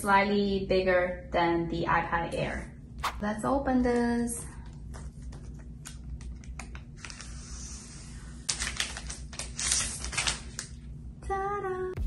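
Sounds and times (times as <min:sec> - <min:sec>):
plastic sheet crinkling: 0:08.5 - 0:10.8.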